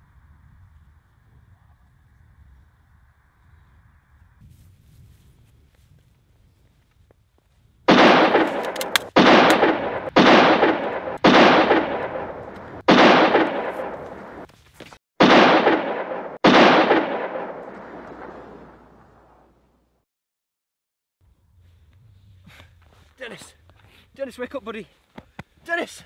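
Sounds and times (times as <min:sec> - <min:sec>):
gunshots with echo: 0:07.9 - 0:14.5, 0:15.2 - 0:19.4.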